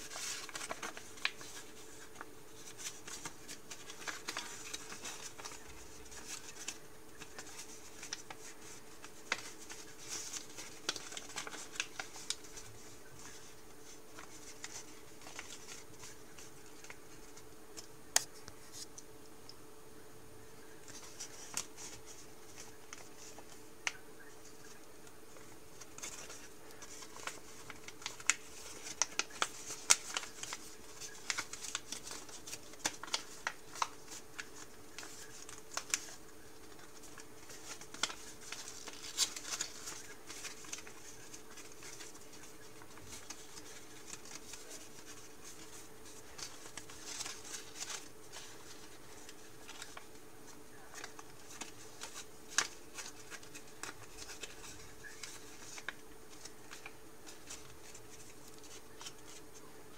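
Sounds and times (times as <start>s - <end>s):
paper crackling and rustling: 0.0s - 19.0s, 20.6s - 59.9s
faint steady hum: 0.0s - 59.9s.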